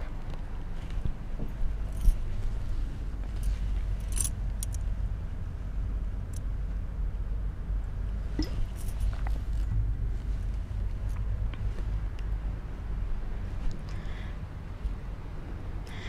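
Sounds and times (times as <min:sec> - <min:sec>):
low background rumble: 0:00.0 - 0:16.0
light clinks and ticks: 0:01.8 - 0:02.5, 0:03.2 - 0:05.0, 0:06.2 - 0:06.5, 0:08.4 - 0:09.8.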